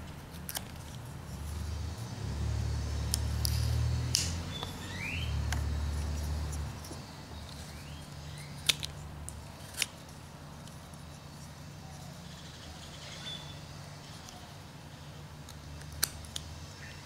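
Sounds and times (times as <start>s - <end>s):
knife carving wood: 3.1s - 12.0s, 15.4s - 16.5s.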